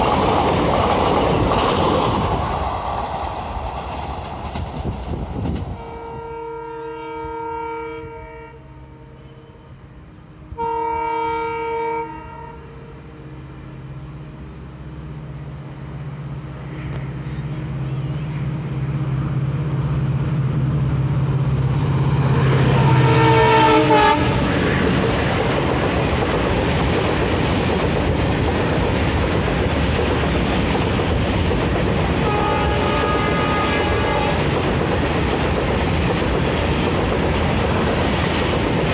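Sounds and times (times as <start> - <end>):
train wagons clickety-clack: 0.0 - 6.2, 22.2 - 38.9
diesel locomotive engine drone: 0.0 - 38.9
locomotive horn: 5.7 - 13.4, 22.3 - 24.6, 32.2 - 34.5.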